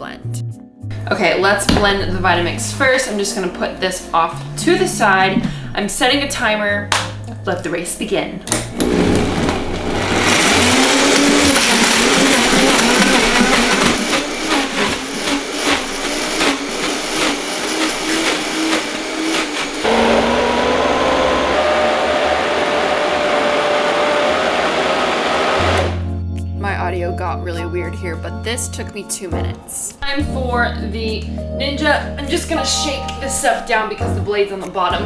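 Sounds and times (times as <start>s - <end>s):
blender motor running: 8.6s - 26.0s
frozen fruit clattering in blender: 8.7s - 20.2s.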